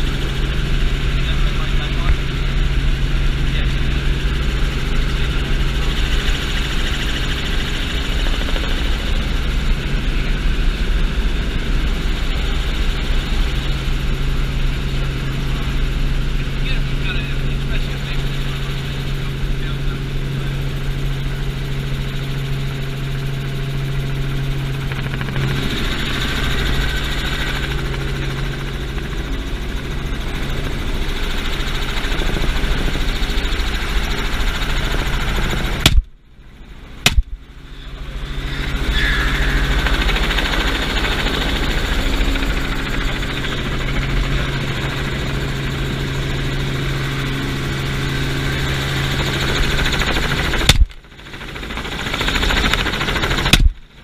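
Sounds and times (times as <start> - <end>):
helicopter engine and rotor drone: 0.0 - 54.0
shotgun blasts: 35.8 - 36.1, 37.1 - 37.4.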